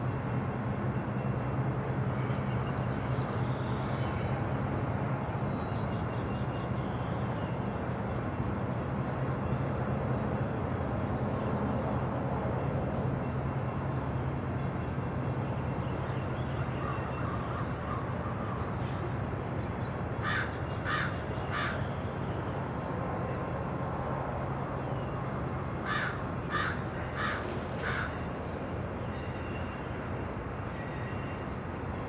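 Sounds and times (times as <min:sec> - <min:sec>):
freight train rumbling past: 0:00.0 - 0:32.0
crow cawing: 0:20.2 - 0:21.8, 0:25.8 - 0:28.2.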